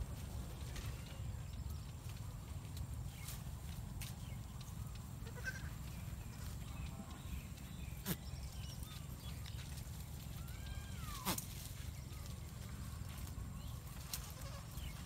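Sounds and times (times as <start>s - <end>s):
goat kid bleating: 5.2s - 6.6s, 10.4s - 11.5s, 14.2s - 14.8s.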